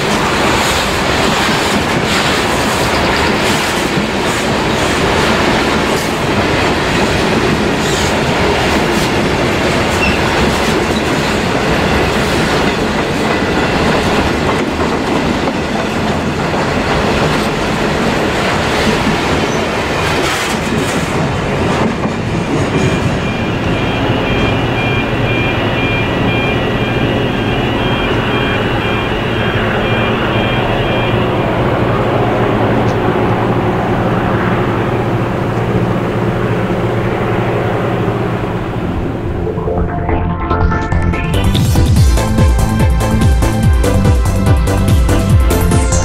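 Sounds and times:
train wheels clacking on rails: 0:00.0 - 0:29.0.

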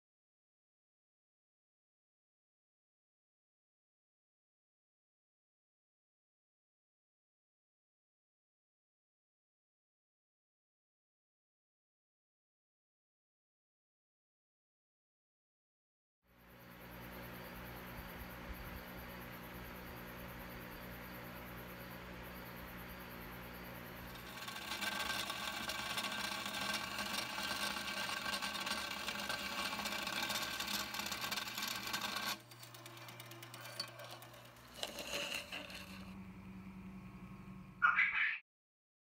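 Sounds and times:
scroll saw cutting board: 0:23.6 - 0:38.3
scroll saw running: 0:23.7 - 0:37.2.

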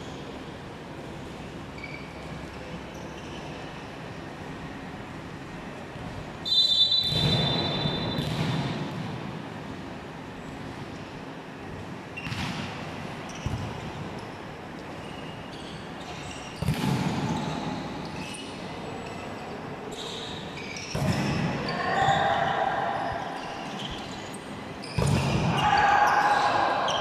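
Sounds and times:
volleyball hits echoing: 0:07.0 - 0:09.3, 0:16.6 - 0:17.4
players shouting: 0:21.6 - 0:23.4, 0:25.4 - 0:27.0.

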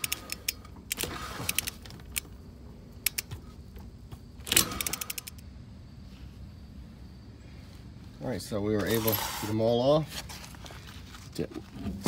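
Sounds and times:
ratchet wrench clicking: 0:00.0 - 0:02.3, 0:03.0 - 0:03.3, 0:04.4 - 0:05.5
metal scraping: 0:08.8 - 0:09.8.

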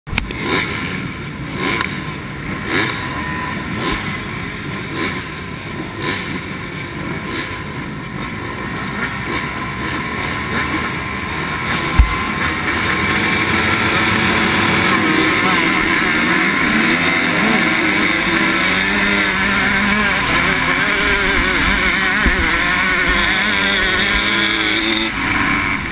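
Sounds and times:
motocross bikes revving: 0:00.1 - 0:25.9
sharp thump: 0:11.9 - 0:12.3.

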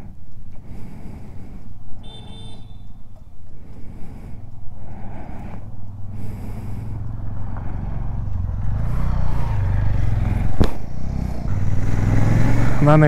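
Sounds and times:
motorcycle engine running: 0:01.5 - 0:13.0
sharp click: 0:10.6 - 0:10.8.

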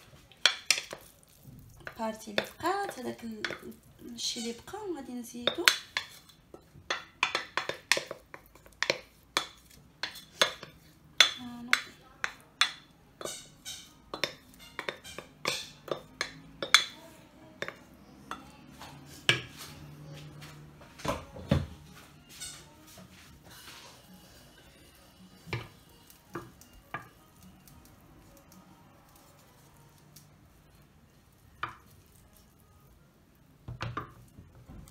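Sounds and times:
wooden spoon scraping a pan: 0:00.0 - 0:27.8.

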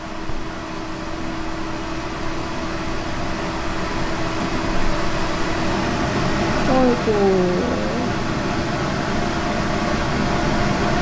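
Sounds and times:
fans blowing air: 0:02.0 - 0:11.0
constant hum: 0:06.6 - 0:08.6.

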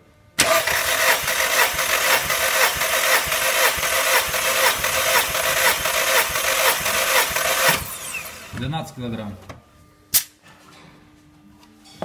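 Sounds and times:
engine cranking by starter motor: 0:00.4 - 0:08.6.

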